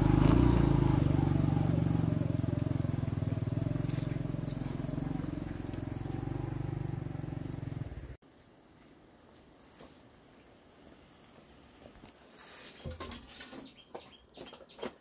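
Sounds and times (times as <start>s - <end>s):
motorcycle engine running: 0.0s - 8.2s
quiet rural background: 0.0s - 15.0s.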